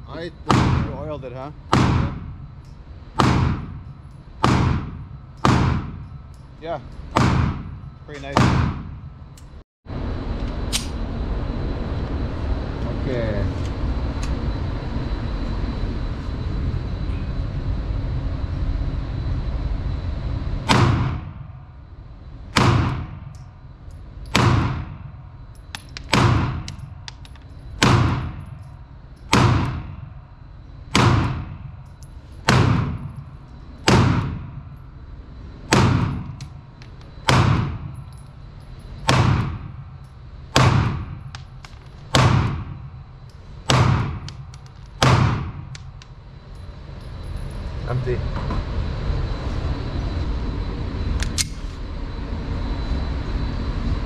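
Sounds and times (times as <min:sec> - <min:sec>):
pistol shots echoing indoors: 0:03.2 - 0:03.8, 0:04.4 - 0:06.0, 0:24.2 - 0:25.0, 0:27.8 - 0:28.5, 0:29.3 - 0:30.0, 0:30.9 - 0:31.6, 0:37.3 - 0:37.9, 0:39.0 - 0:39.6, 0:40.5 - 0:42.8, 0:43.6 - 0:46.0.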